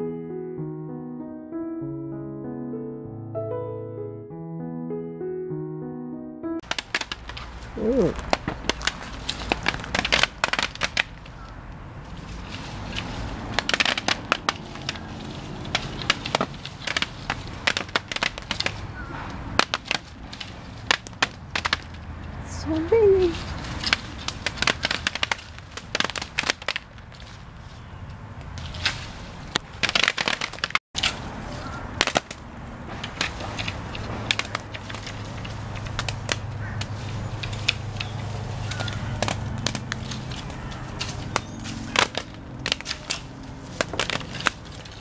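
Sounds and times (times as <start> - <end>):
berries tapping on plastic tarps: 6.6 - 22.1, 22.9 - 27.4, 29.5 - 45.0.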